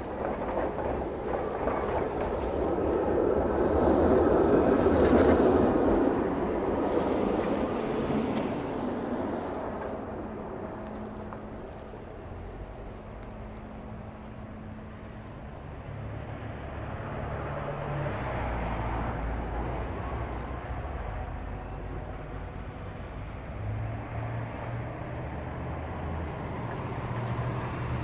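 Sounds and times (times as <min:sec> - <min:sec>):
low hum of trolley: 0:00.0 - 0:28.0
tyre hiss on wet road: 0:03.5 - 0:10.0.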